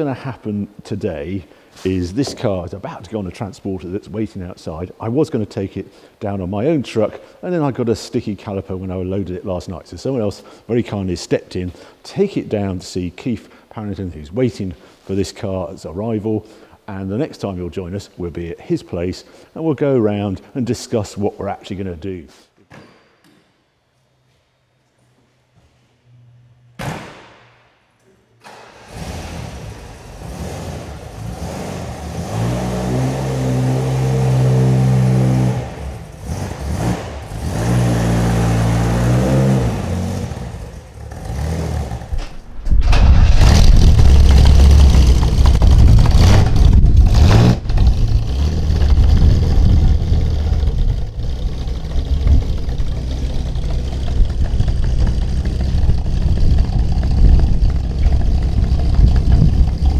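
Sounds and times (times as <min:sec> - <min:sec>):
thump: 0:26.8 - 0:27.6
car engine starting and revving: 0:28.5 - 0:59.9
deep engine rumble: 0:39.4 - 0:59.9.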